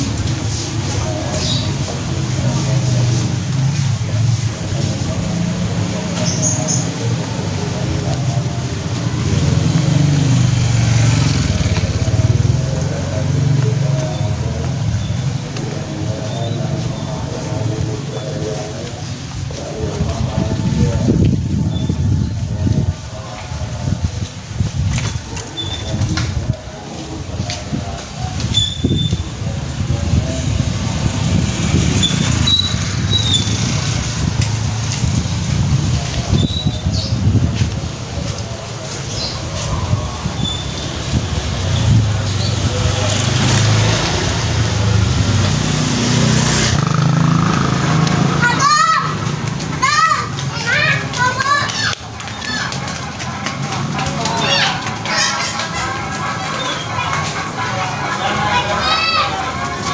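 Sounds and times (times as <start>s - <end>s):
small motorbike passing: 0.0s - 59.9s
small motorcycle engine running: 9.2s - 13.8s, 43.0s - 48.4s.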